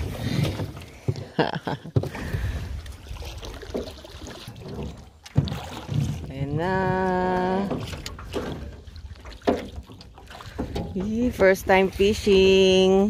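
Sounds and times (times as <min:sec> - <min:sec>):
oar splashing in water: 0:00.0 - 0:13.0.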